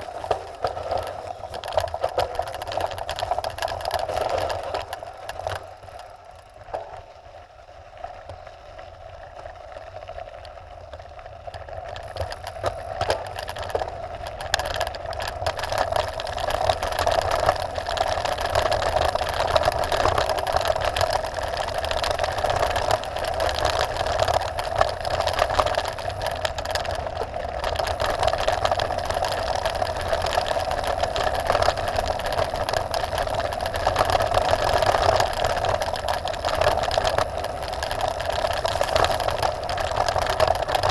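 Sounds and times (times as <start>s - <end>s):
tyres rumbling on gravel: 0.0s - 6.9s, 11.5s - 40.9s
stones ticking and rattles: 0.0s - 7.3s, 9.4s - 40.9s
bike freehub buzzing: 11.7s - 40.9s.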